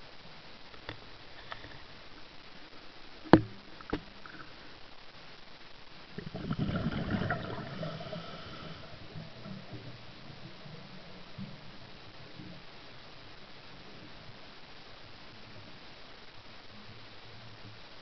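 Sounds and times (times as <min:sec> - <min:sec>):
underwater knock: 0:03.3 - 0:04.1
diver's exhaled bubbles gurgling: 0:06.1 - 0:10.4.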